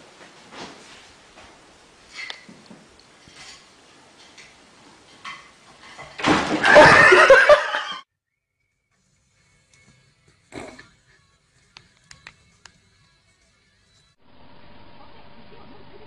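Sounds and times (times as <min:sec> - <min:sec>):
people laughing and shrieking: 0:06.6 - 0:08.0.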